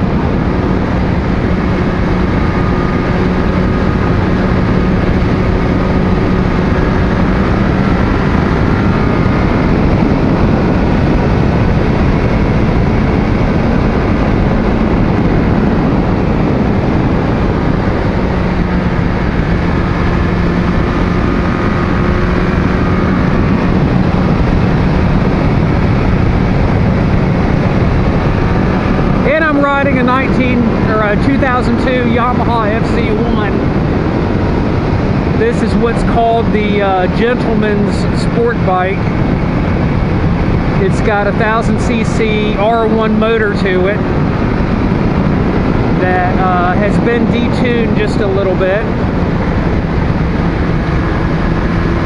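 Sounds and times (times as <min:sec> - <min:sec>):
heavy wind rush: 0:00.0 - 0:52.0
motorcycle engine steady note: 0:00.0 - 0:52.0.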